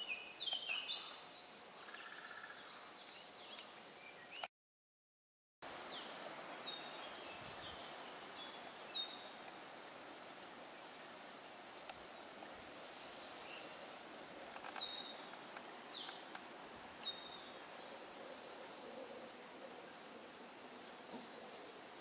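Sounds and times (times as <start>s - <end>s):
flowing water: 5.7s - 18.6s
faint clicks: 11.8s - 12.0s, 14.4s - 16.5s.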